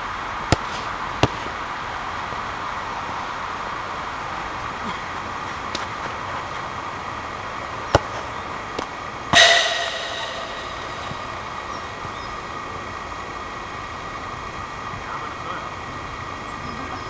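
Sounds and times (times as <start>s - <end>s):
ball clanging into metal fence: 9.4s - 12.2s.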